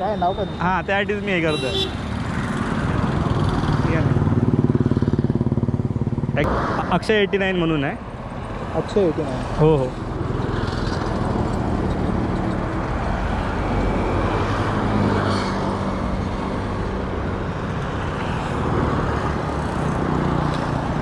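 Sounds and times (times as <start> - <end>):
highway traffic passing: 0.0 - 21.0.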